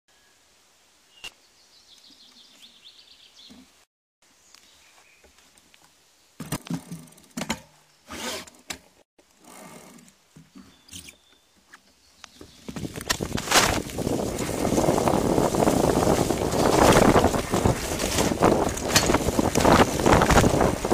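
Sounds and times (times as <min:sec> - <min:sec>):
tyres running over leaves: 0:12.4 - 0:20.9
bike rattling and knocking: 0:12.7 - 0:20.9.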